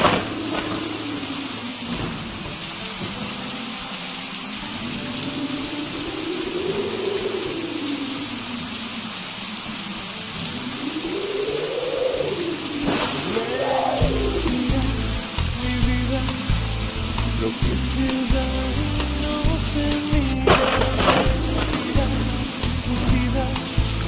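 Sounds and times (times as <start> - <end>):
steady rain: 0.0 - 24.0.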